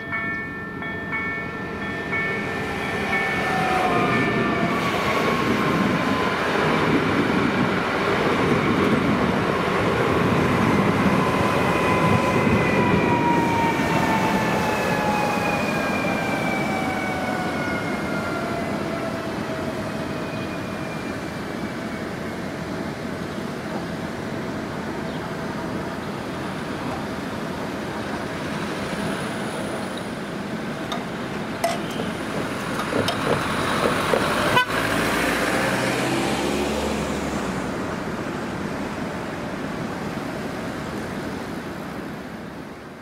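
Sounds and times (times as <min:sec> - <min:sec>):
road vehicles passing: 0:23.0 - 0:43.0.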